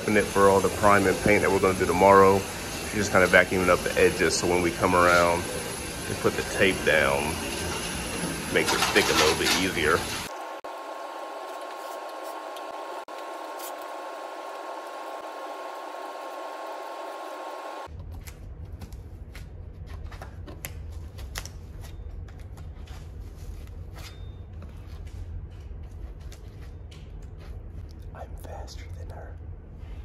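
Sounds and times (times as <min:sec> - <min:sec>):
vacuum cleaner whine: 0:00.0 - 0:17.9.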